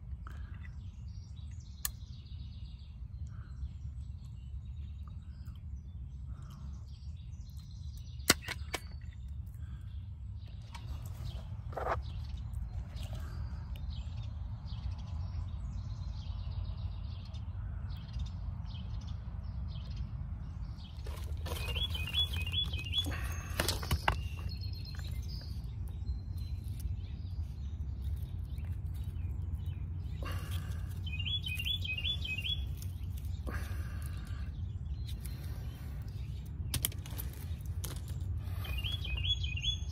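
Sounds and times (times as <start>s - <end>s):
small birds chirping: 0.0s - 39.9s
hands digging in gravel: 21.0s - 25.8s, 26.4s - 34.4s, 35.0s - 39.2s.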